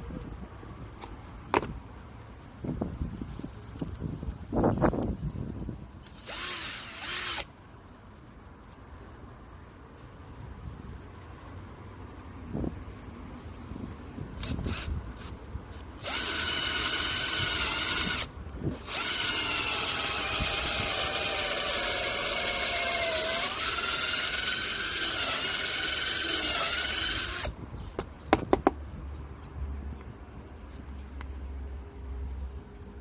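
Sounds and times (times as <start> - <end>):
cordless drill whining: 6.0 - 7.5, 16.0 - 27.5.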